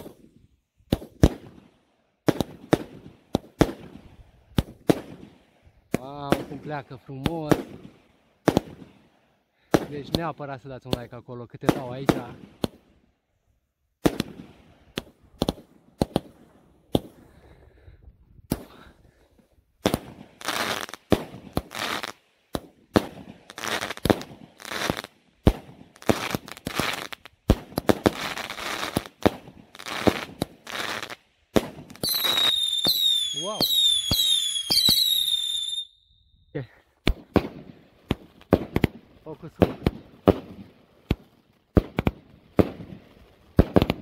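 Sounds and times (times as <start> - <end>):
crackling hiss of fireworks: 0.0 - 12.9, 14.0 - 17.6, 18.5 - 35.9, 36.6 - 44.0
firework bangs: 14.0 - 17.2, 19.8 - 35.9, 37.0 - 44.0
falling firework whistles: 32.0 - 36.5.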